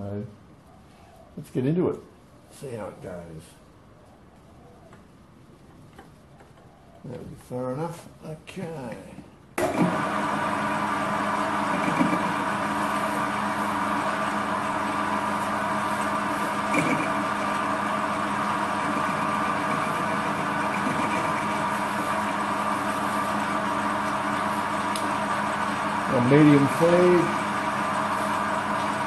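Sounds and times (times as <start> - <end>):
metal lathe humming: 9.6 - 29.0.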